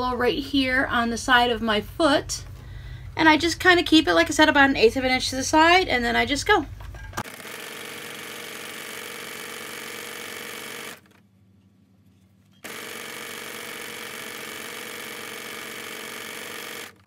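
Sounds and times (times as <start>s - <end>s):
electric sewing machine running: 7.2s - 11.2s, 12.6s - 17.0s.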